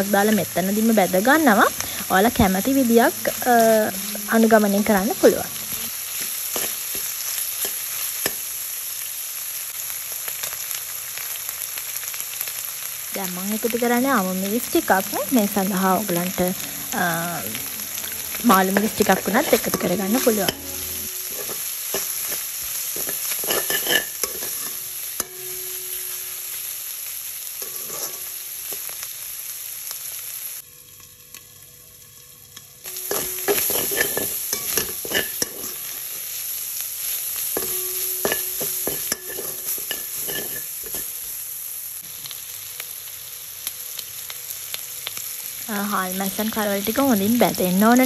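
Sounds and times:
food sizzling in oil: 0.0 - 48.0
metal spoon scraping pan: 18.3 - 25.5, 27.6 - 28.3, 33.0 - 36.2, 37.6 - 41.1.

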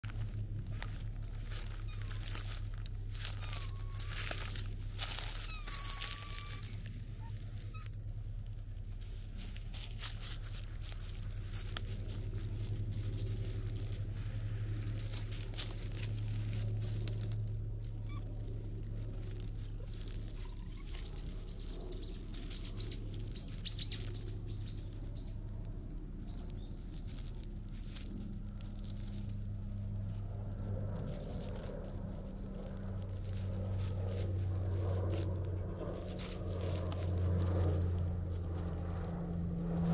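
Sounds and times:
pine needles crackling underfoot: 0.0 - 39.9
bird chirping: 20.2 - 27.3.

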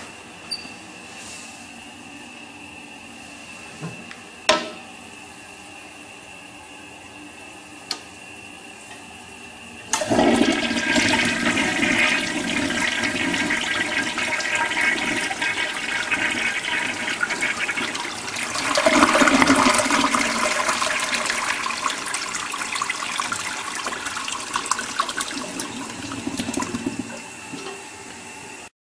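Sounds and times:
toilet flushing water rush: 9.9 - 28.5.

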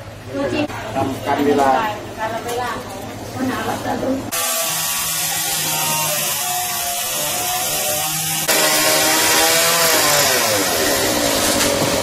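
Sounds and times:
chainsaw cutting wood: 4.3 - 12.0.

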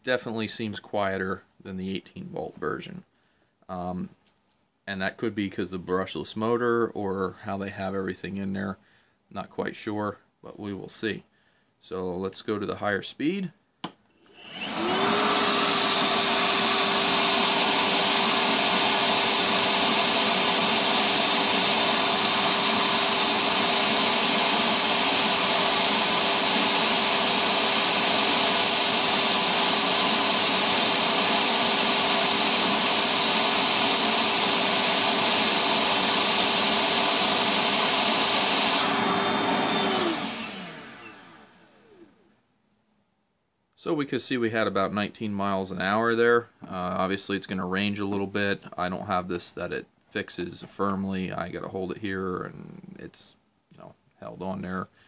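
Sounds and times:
wet-dry vacuum motor running: 14.3 - 42.2.

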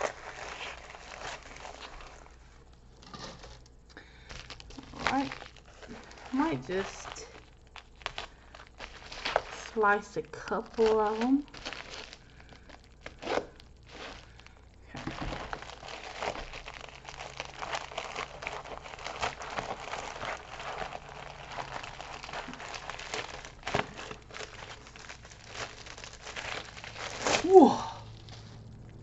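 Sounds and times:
mailer wrapping crinkling: 0.0 - 29.0.

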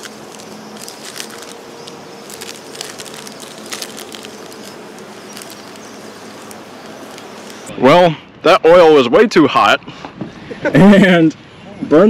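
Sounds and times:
plastic bag crinkling: 0.0 - 7.7
steady outdoor hiss: 0.0 - 12.0.

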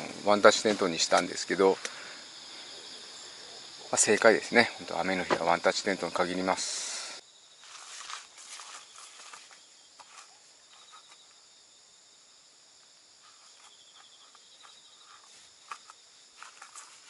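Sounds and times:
insects chirring: 0.0 - 17.0
footsteps on grass: 7.6 - 11.2, 13.2 - 17.0.

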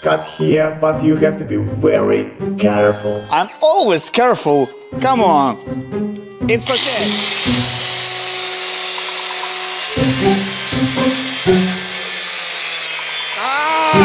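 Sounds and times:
angle grinder cutting metal: 0.0 - 0.5, 2.6 - 3.8, 6.6 - 14.0
background music: 0.0 - 12.4, 13.8 - 14.0.

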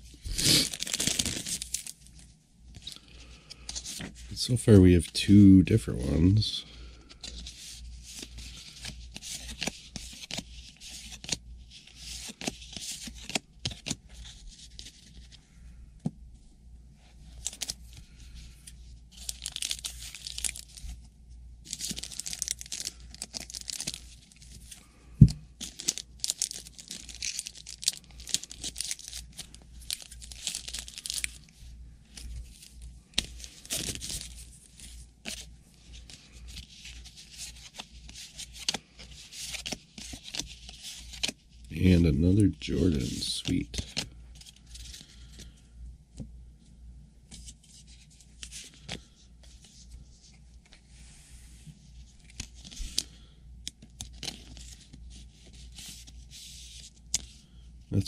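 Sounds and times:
wrapper tearing and crinkling: 0.3 - 2.0, 19.1 - 20.8, 21.7 - 24.3, 25.6 - 31.4.

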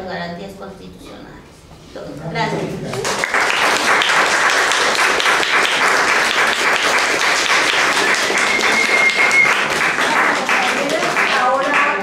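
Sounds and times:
people clapping: 2.9 - 12.0.

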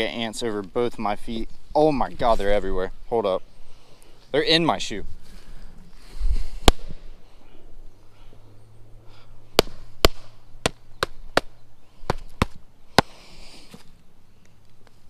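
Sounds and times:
sharp slaps: 6.6 - 7.0, 9.6 - 13.2.

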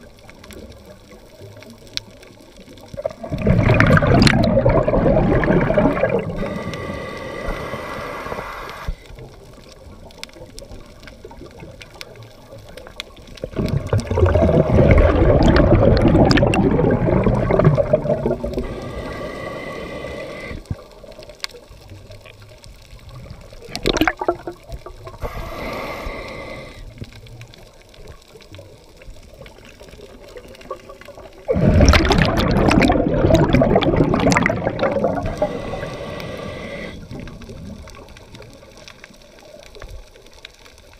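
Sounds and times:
quiet water noise: 0.0 - 40.9
underwater breath bubbles: 2.9 - 9.1, 13.4 - 20.9, 23.2 - 27.2, 30.6 - 38.1.

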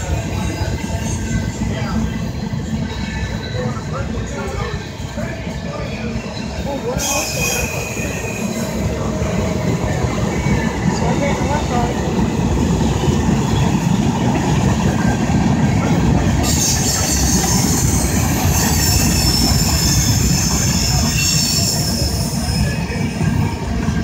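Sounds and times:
steel wheels rumbling on rail: 0.0 - 24.0
high-pitched metallic squeal: 4.6 - 9.1, 16.4 - 23.6.

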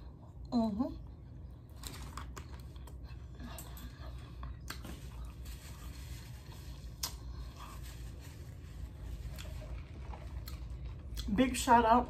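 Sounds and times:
steady low hum: 0.0 - 12.0
chewing: 1.7 - 11.3.

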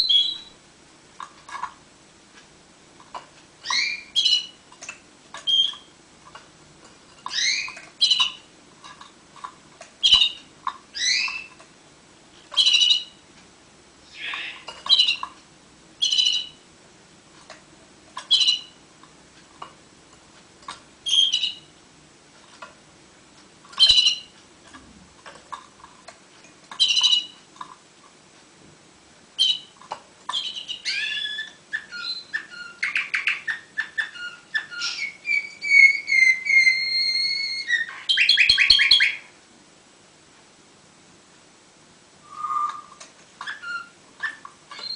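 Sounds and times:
canary chirping and singing: 0.0 - 0.5, 3.6 - 4.6, 5.4 - 5.9, 7.2 - 8.5, 10.0 - 11.6, 12.5 - 13.2, 14.1 - 15.3, 16.0 - 16.6, 18.3 - 18.8, 21.0 - 21.7, 23.8 - 24.4, 26.7 - 27.4, 29.4 - 39.3, 42.4 - 44.9.

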